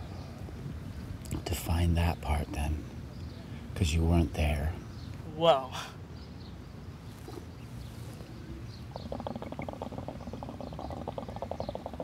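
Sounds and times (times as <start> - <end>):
hookah water bubbling: 8.9 - 12.0.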